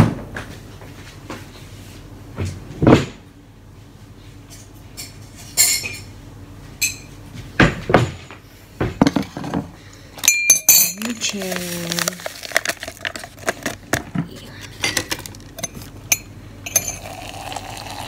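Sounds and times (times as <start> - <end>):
spoon clinking against mug: 10.2 - 11.2, 15.6 - 17.9.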